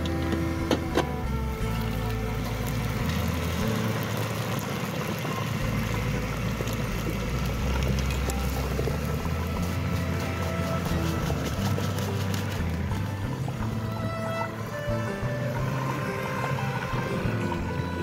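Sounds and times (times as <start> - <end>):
fries sizzling in hot oil: 0.0 - 13.7.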